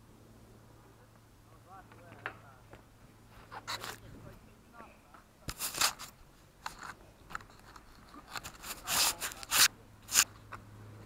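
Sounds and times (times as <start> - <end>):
sleeve rubbing on microphone: 3.3 - 4.1, 5.5 - 10.3.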